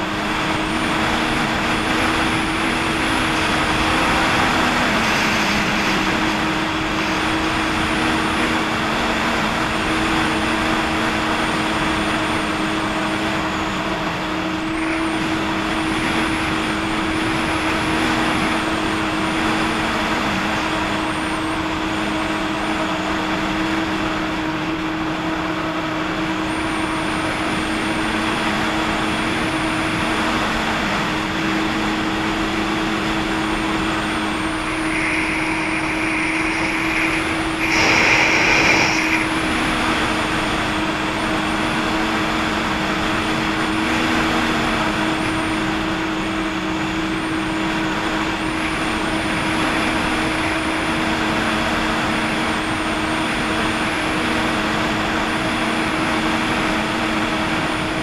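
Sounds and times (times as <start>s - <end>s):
rushing water noise: 0.0s - 9.2s, 28.7s - 45.8s
jet ski engine running: 0.0s - 58.0s.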